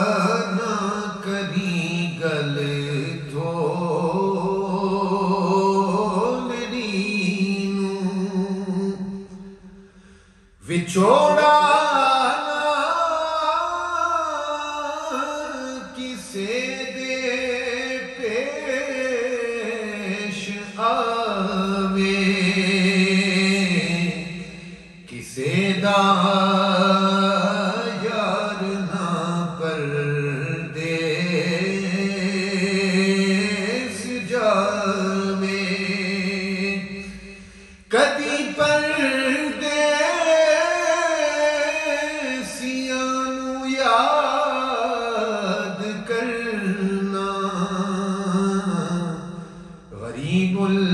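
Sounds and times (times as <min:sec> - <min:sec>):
man singing unaccompanied: 0:00.0 - 0:09.6, 0:10.6 - 0:50.9
man chanting melodically: 0:00.0 - 0:09.8, 0:10.6 - 0:50.9
man breathing: 0:09.7 - 0:10.6, 0:37.2 - 0:37.9.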